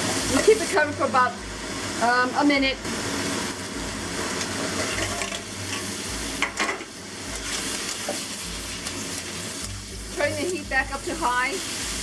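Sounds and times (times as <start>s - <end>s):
vegetables sizzling in oil: 0.0s - 12.0s
spatula scraping a wok: 4.4s - 10.6s.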